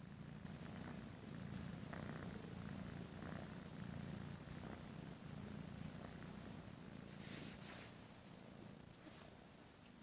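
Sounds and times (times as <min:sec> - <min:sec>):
kitten purring: 0:00.0 - 0:10.0.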